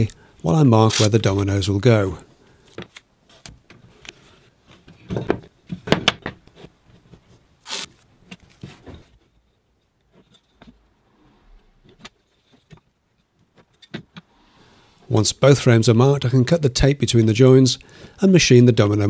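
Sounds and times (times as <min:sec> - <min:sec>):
masking tape pulled off: 0:00.8 - 0:01.2, 0:07.6 - 0:08.0
tape tearing hiss: 0:00.8 - 0:01.2, 0:07.6 - 0:08.0.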